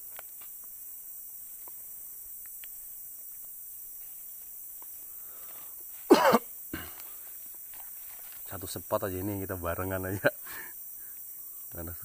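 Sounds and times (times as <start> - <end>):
steady high hiss: 0.0 - 12.0
faint ticks: 1.5 - 4.1, 4.7 - 6.0
soft rustles: 6.9 - 8.8.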